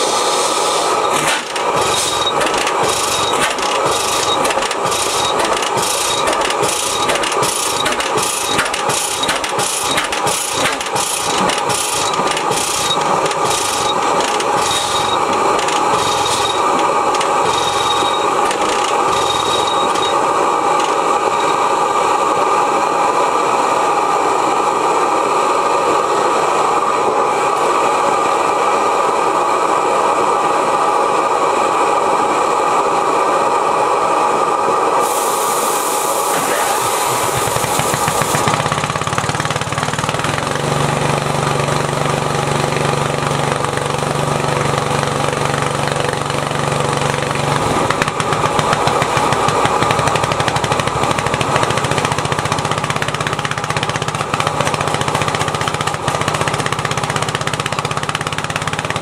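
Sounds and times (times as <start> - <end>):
burner hissing: 0.0 - 22.2, 34.9 - 39.0
engine beats turning over: 0.8 - 21.8, 36.4 - 59.0.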